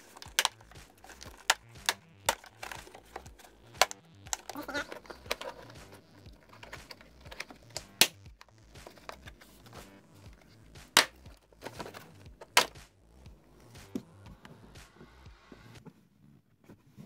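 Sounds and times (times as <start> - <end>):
plastic clicks and rattles: 0.0 - 12.8
plastic clips snapping loose: 0.0 - 12.9.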